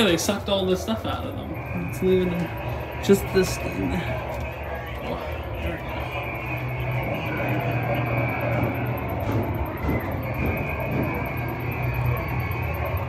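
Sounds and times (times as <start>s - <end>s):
low droning rumble with hum: 0.0s - 13.0s.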